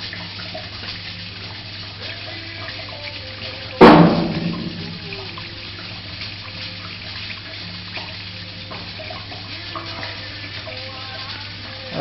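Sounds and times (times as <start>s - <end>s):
water trickling through pipes: 0.0s - 12.0s
knock: 3.8s - 5.0s.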